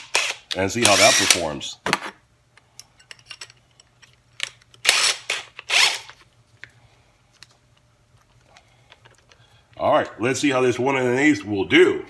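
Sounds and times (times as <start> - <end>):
impact wrench rasping bursts: 0.0 - 1.4, 4.8 - 6.1.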